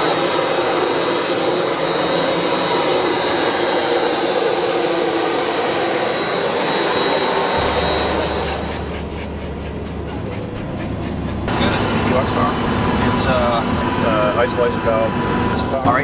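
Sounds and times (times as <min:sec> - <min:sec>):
high-pitched whine: 0:00.0 - 0:16.0
jet engine rush: 0:00.0 - 0:16.0
low hum: 0:05.5 - 0:14.0.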